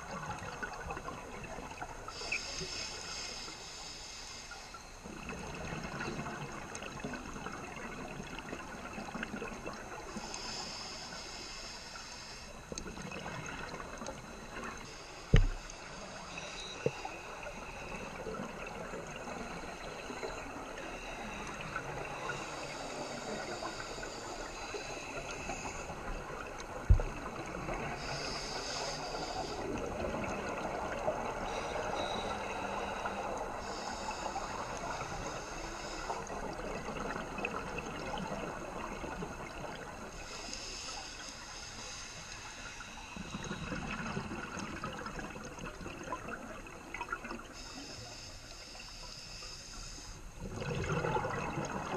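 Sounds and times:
underwater crackling hiss: 0.0 - 51.9
exhaled bubbles gurgling: 5.0 - 10.6, 12.5 - 40.6, 43.1 - 47.6, 50.4 - 51.9.

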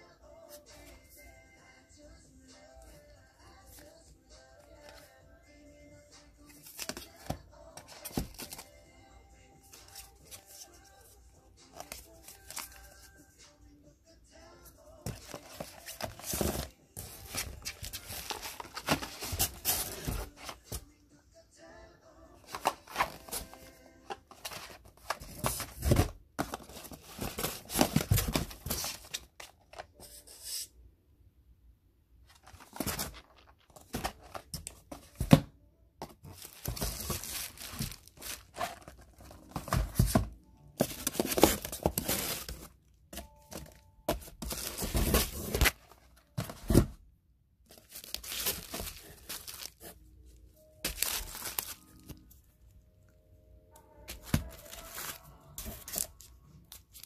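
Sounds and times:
cardboard packaging rustling: 15.0 - 20.9, 22.4 - 30.5, 32.3 - 35.4, 36.0 - 47.0, 47.7 - 50.0, 50.6 - 52.4, 54.1 - 57.0
foil packets crinkling: 36.4 - 40.1, 50.9 - 52.1.

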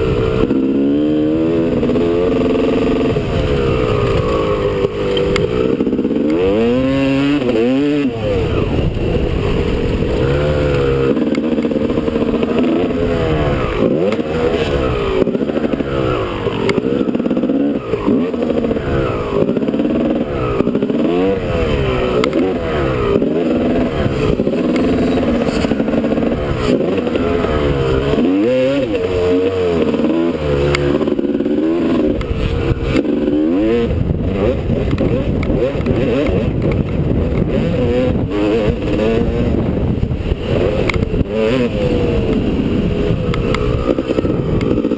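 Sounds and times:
motocross bike engine revving: 0.0 - 44.9.

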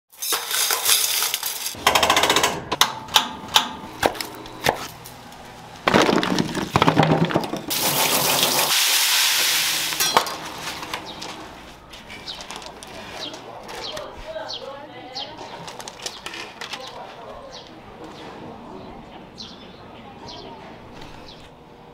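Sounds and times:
fish and utensils clattering: 0.1 - 1.8, 5.9 - 11.4
steady hiss: 8.5 - 10.1.

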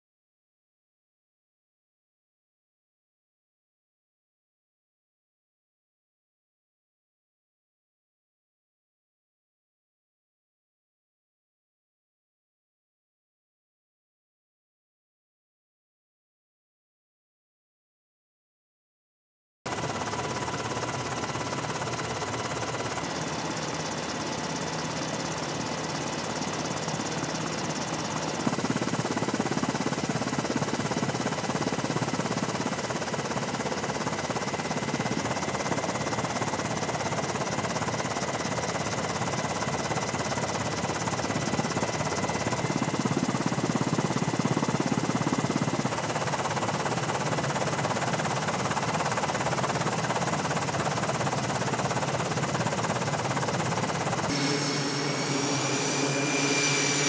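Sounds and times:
helicopter engine and rotor: 19.7 - 57.0.

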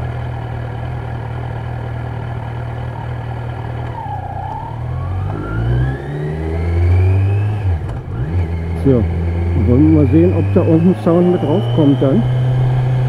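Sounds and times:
motorcycle engine accelerating: 0.0 - 13.0
rising whine: 3.8 - 13.0.

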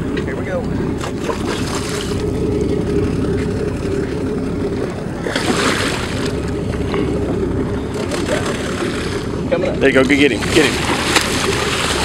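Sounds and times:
low boat rumble: 0.0 - 12.0
wind: 0.0 - 12.0
fish splashing at water surface: 1.0 - 2.3, 5.2 - 6.5, 10.4 - 12.0.

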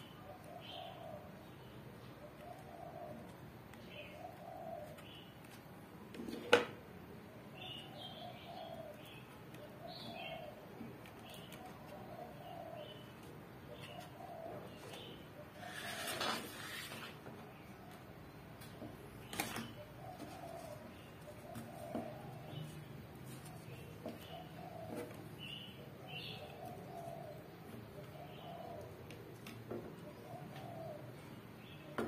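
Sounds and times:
small birds chirping faintly: 0.0 - 32.0
dove cooing: 0.2 - 1.4, 2.0 - 5.2, 7.8 - 13.1, 13.7 - 16.8, 19.6 - 32.0.

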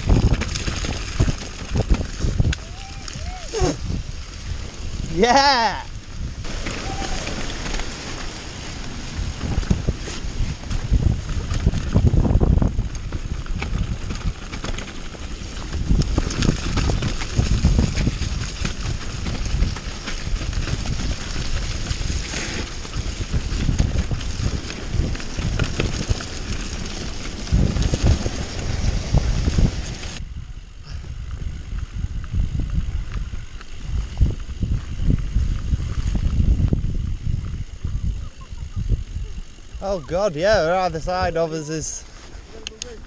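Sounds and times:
tyres rumbling over gravel: 0.0 - 30.2
bike rattling over bumps: 0.0 - 43.0
wind buffeting microphone: 0.0 - 43.0.

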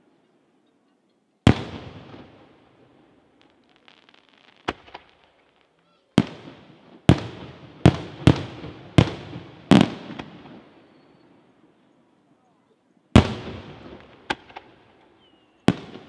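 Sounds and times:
firework crack: 1.4 - 11.0, 13.1 - 16.0
firework booms echoing: 1.5 - 10.8, 13.2 - 14.8, 15.7 - 16.0.

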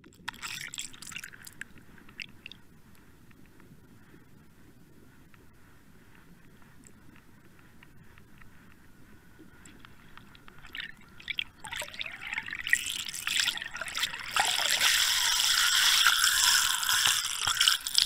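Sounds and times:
water splashing and gurgling: 0.0 - 2.6, 10.2 - 18.0.

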